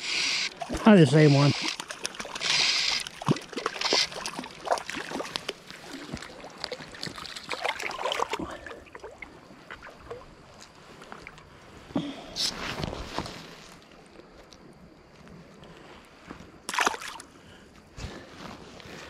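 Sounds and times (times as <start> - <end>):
fish splashing at water surface: 0.1 - 9.1, 16.7 - 17.3.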